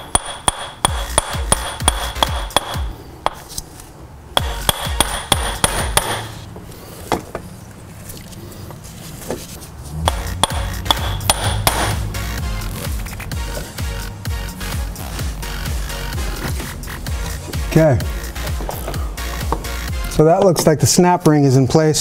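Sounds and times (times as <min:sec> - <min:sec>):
hammer striking metal: 0:00.0 - 0:03.5, 0:04.4 - 0:06.4, 0:10.1 - 0:12.2.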